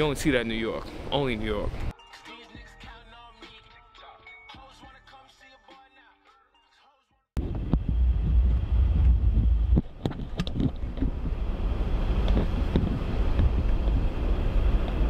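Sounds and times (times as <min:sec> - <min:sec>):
low rumble of road and engine: 0:00.0 - 0:01.9, 0:07.4 - 0:15.0.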